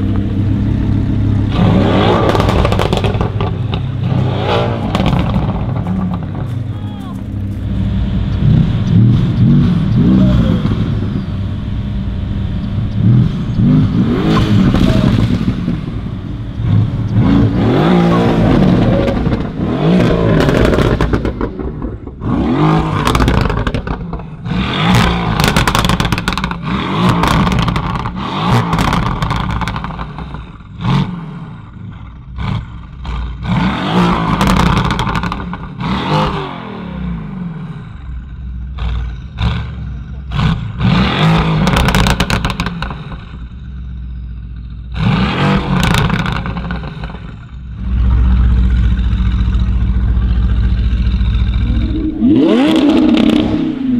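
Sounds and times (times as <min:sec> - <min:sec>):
car engine revving: 0:00.0 - 0:53.9
exhaust pops and crackles: 0:02.0 - 0:04.2, 0:04.8 - 0:09.5, 0:18.5 - 0:30.8, 0:34.2 - 0:35.8, 0:38.7 - 0:43.7, 0:45.5 - 0:52.1.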